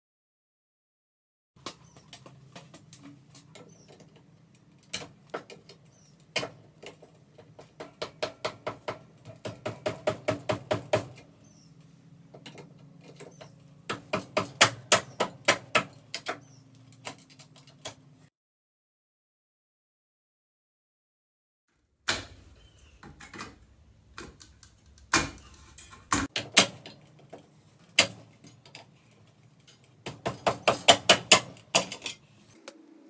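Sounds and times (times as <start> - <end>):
clicks and knocks of wiring: 1.6 - 8.0, 22.0 - 32.2.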